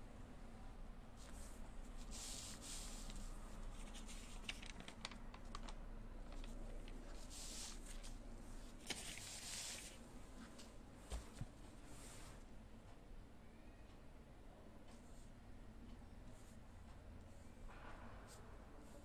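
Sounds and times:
brush swishing on paper: 1.2 - 4.4, 8.9 - 10.0.

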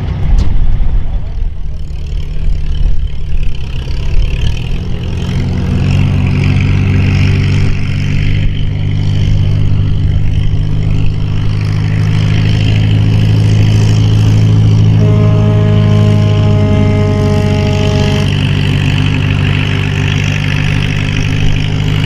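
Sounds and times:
tractor engine running under load: 0.0 - 22.0.

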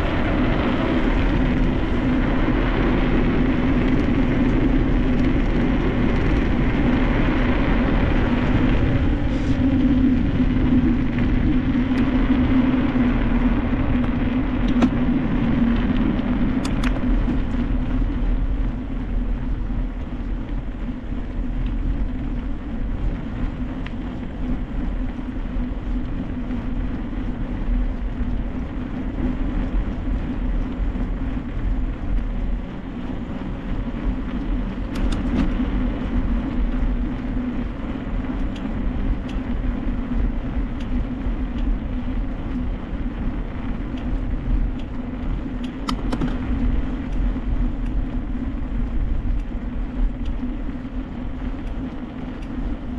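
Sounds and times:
bike tyre hum: 0.0 - 52.9
wind rumble on microphone: 0.0 - 52.9
sharp rattling clicks: 16.6 - 17.5, 34.9 - 35.6, 43.8 - 48.1.

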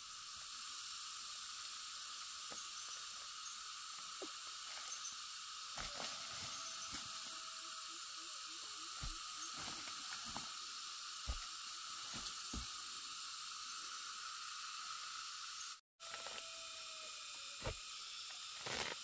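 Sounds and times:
steady high hiss: 0.0 - 19.0
rustling fern litter: 5.7 - 7.5, 8.8 - 12.8.

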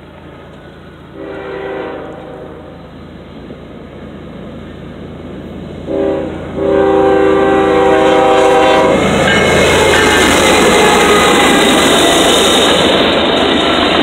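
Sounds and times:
train passing with loud rumble: 0.0 - 14.0
locomotive air horn blasts: 1.2 - 2.8, 5.9 - 12.3.

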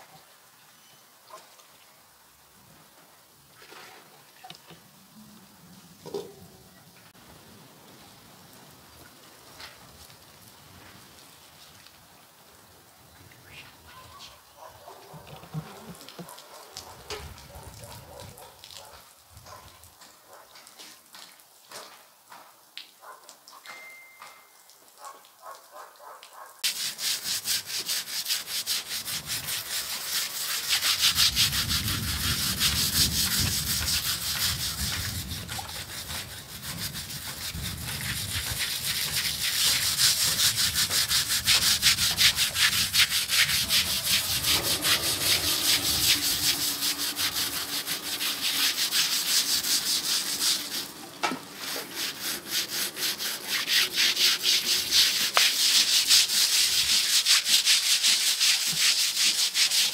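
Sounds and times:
fast scraping strokes: 26.6 - 59.9.

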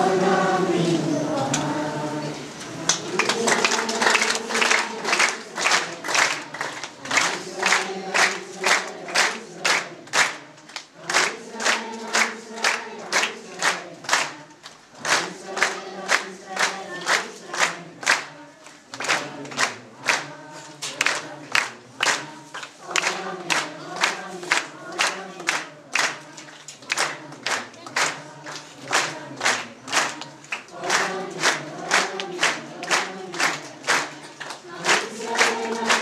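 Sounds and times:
group singing: 0.0 - 36.0
hand-clapping: 2.8 - 36.0.

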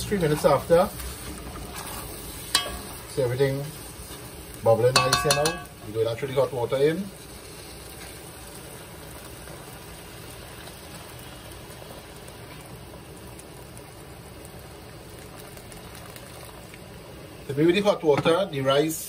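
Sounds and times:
water pouring into pot: 9.0 - 17.5.

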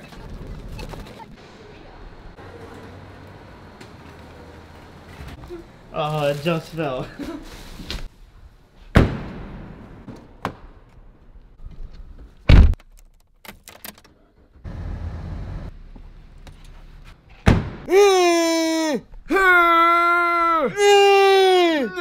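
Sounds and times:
person wailing: 17.9 - 22.0.

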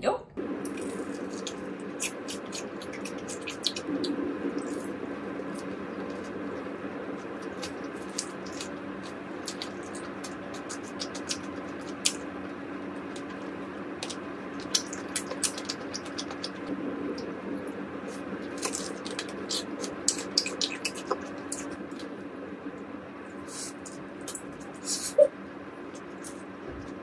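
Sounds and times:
low hum: 0.0 - 27.0
fried chicken chewing: 0.6 - 12.3, 13.0 - 17.2, 18.1 - 22.1.

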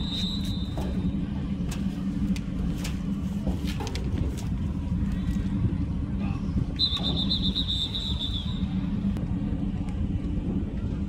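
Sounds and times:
low rumble: 0.0 - 11.0
referee's whistle: 6.8 - 8.7.

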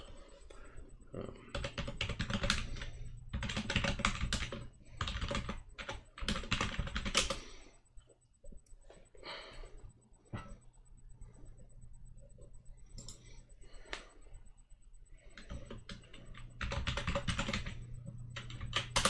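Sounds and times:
typing on a computer keyboard: 1.4 - 7.7, 15.2 - 19.0.

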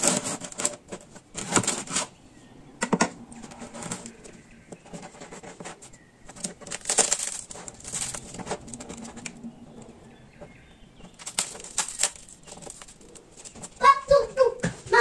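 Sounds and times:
bread crust crackling: 3.4 - 13.8.

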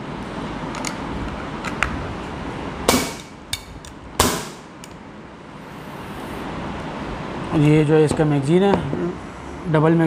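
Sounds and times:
air pistol gas shots: 2.9 - 3.3, 4.2 - 4.7.

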